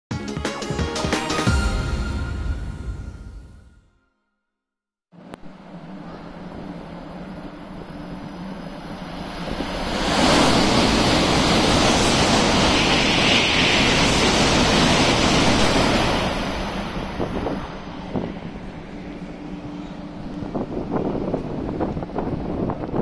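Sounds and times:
high-speed train passing: 5.2s - 23.0s.

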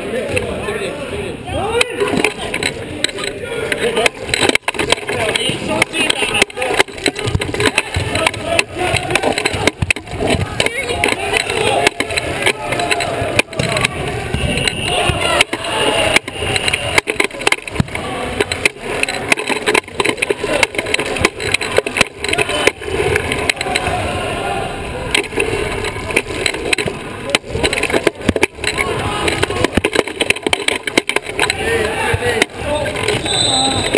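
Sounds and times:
wheelchair wheels rumbling: 2.0s - 33.9s
people shouting in a gym: 7.6s - 17.0s, 17.9s - 19.0s, 22.3s - 25.2s, 28.8s - 29.6s, 31.5s - 33.9s.

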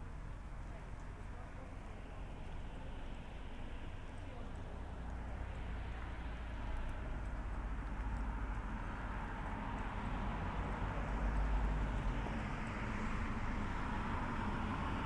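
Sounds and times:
road traffic rumble: 0.0s - 15.0s
footsteps on frosty pavement: 4.0s - 13.4s.

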